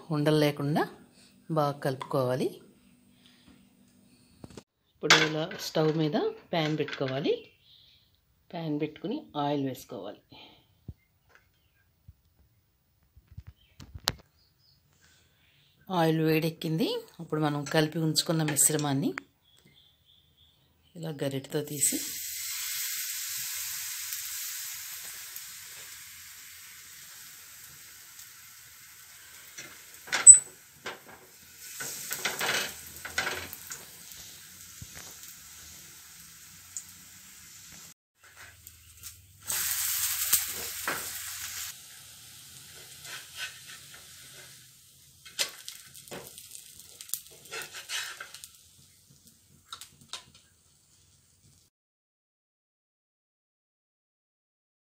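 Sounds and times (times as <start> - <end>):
batter sizzling in oil: 21.5 - 51.7
utensils scraping pan: 43.0 - 44.5, 47.3 - 48.5.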